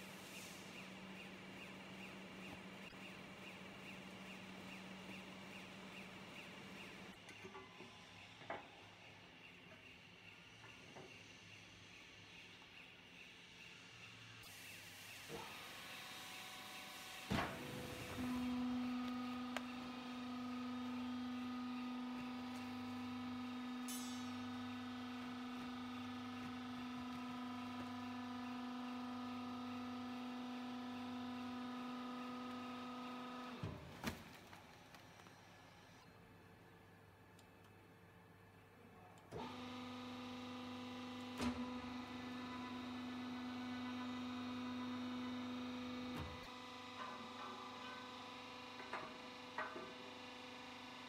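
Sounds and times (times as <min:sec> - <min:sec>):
hydraulic pump motor humming: 0:16.8 - 0:33.6, 0:39.4 - 0:51.0.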